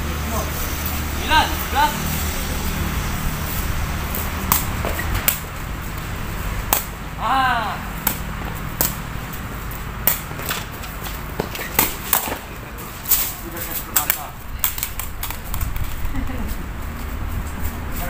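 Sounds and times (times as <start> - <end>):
low traffic hum: 0.0 - 18.0
foot kicking hollow woven ball: 4.4 - 7.0
person shouting: 7.2 - 7.9.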